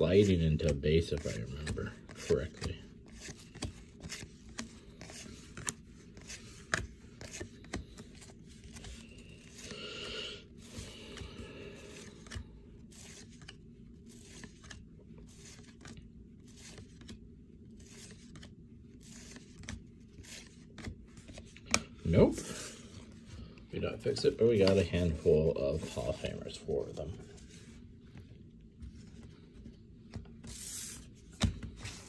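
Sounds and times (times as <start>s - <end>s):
low room hum: 0.0s - 32.0s
cards being flicked through: 0.2s - 9.7s, 10.7s - 22.0s.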